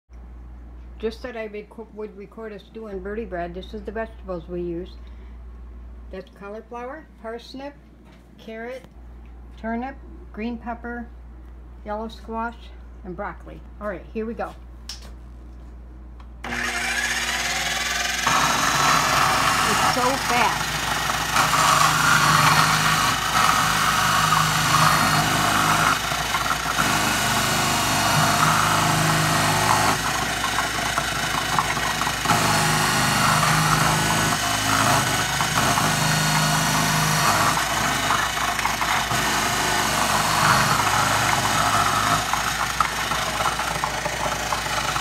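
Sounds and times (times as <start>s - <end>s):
carrots shredding rasp: 16.4s - 45.0s
food processor motor humming: 16.4s - 45.0s.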